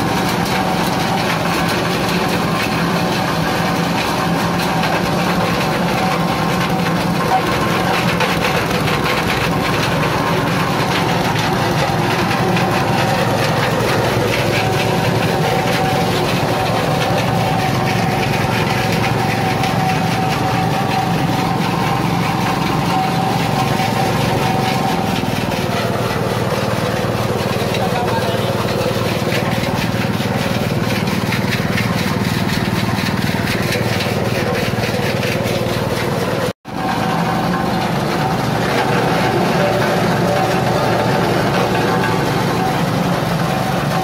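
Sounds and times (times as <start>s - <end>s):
shredder rotor whirring: 0.0s - 44.0s
small engine drone: 0.0s - 44.0s.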